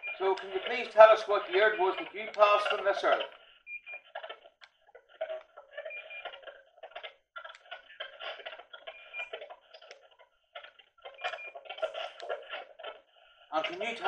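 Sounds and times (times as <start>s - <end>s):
choppy radio static sweeping: 0.1s - 3.3s.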